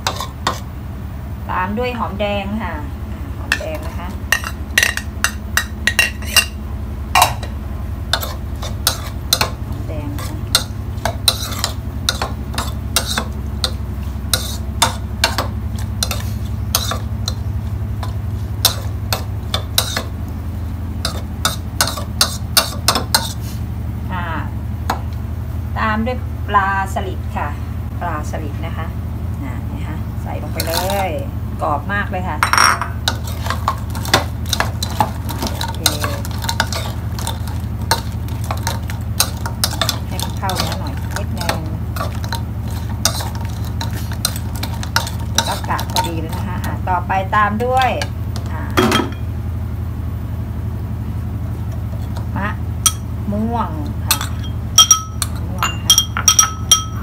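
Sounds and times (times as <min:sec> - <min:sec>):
steady low hum: 0:00.0 - 0:57.0
metal spoon clinking in bowl: 0:54.1 - 0:57.0.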